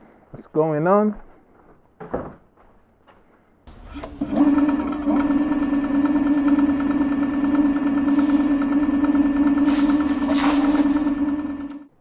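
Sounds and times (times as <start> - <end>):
electric motor whine: 3.7 - 11.9.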